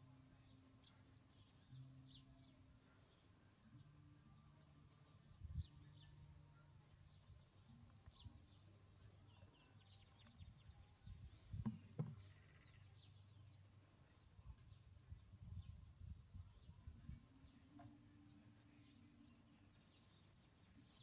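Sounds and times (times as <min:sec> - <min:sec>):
soft knocks: 0:11.5 - 0:12.4.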